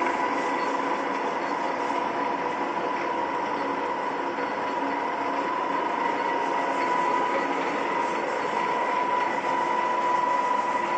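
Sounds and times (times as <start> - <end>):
lathe whirring with high whine: 0.0 - 10.9.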